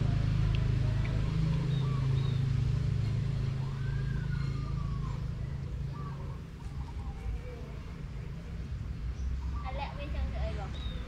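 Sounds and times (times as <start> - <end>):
low motor hum: 0.0 - 11.0
faint bird calls: 0.5 - 8.4.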